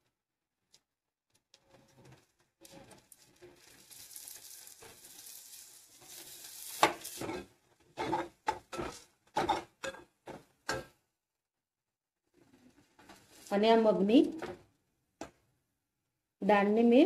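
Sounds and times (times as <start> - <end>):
spoon scraping while stirring: 2.7 - 10.0
sauce sizzling in a pan: 3.1 - 7.5.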